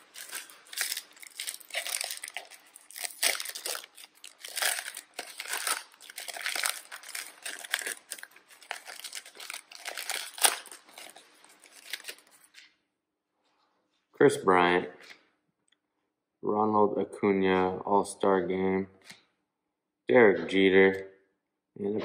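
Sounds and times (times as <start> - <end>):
foil wrapper crinkling: 0.0 - 12.6.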